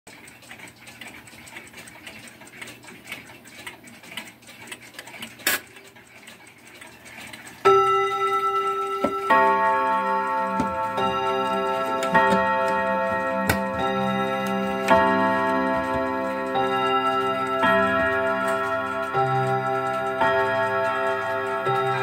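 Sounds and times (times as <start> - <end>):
clock ticking: 0.1 - 22.0
clock striking chimes: 7.6 - 22.0.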